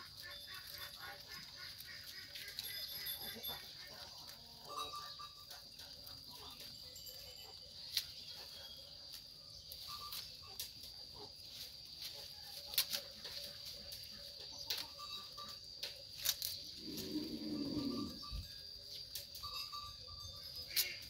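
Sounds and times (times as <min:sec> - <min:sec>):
goats chewing leafy branches: 0:00.0 - 0:04.7, 0:07.6 - 0:17.5.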